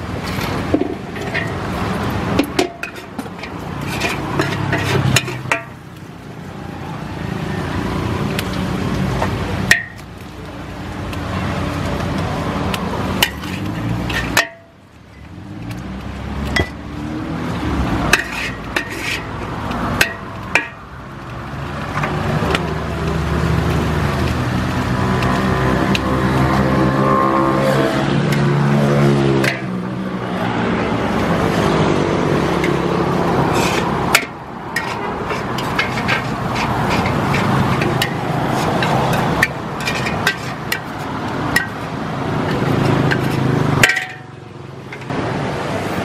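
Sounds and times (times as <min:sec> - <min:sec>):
road traffic noise: 0:00.0 - 0:46.0
metal spatula scraping a wok: 0:00.1 - 0:06.0, 0:13.0 - 0:15.3, 0:18.1 - 0:20.8, 0:32.4 - 0:44.3.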